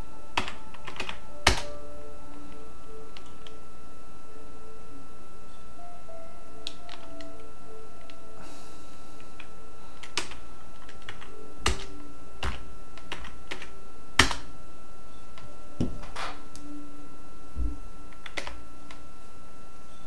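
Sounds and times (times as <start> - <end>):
faint high-pitched tone: 0.0 - 20.0
keyboard and mouse clicks: 9.4 - 14.5, 18.1 - 19.0.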